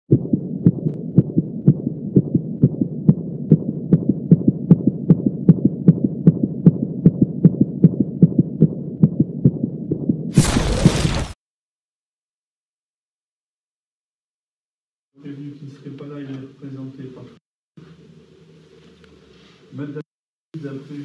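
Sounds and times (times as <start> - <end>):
steady low hum: 0.1 - 10.3
heartbeat thumps: 0.1 - 10.4.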